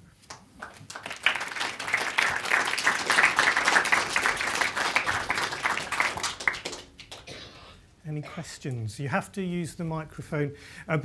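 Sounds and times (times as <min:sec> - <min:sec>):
audience applauding: 0:00.3 - 0:07.3.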